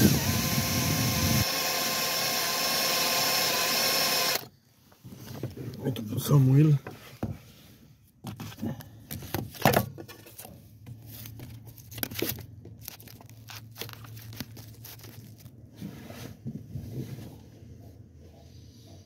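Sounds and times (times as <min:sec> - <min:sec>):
drill bit clicking and scraping: 0:00.0 - 0:04.5
electric drill boring steel: 0:00.0 - 0:04.5.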